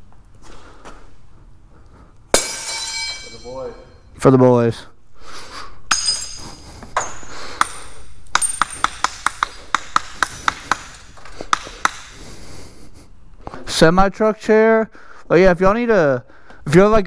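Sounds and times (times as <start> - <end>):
hard objects pinging: 2.3 - 4.1, 5.9 - 12.2.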